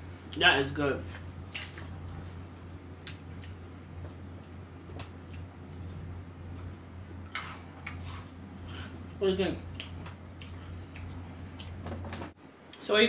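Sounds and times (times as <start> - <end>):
low electrical hum: 0.0 - 13.0
person chewing crunchy biscuits: 5.2 - 9.0, 9.7 - 11.8.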